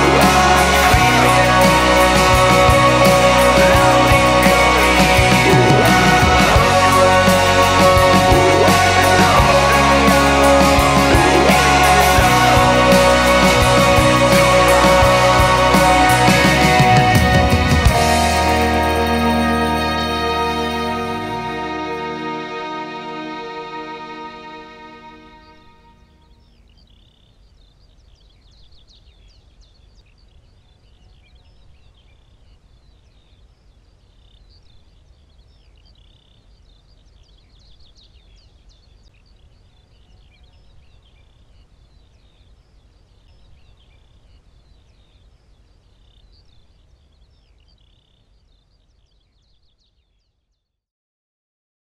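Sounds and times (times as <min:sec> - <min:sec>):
low outdoor rumble: 0:00.0 - 0:24.3.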